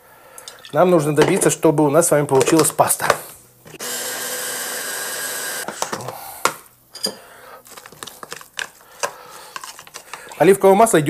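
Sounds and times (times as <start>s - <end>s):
blender chopper whirring: 3.7s - 5.8s.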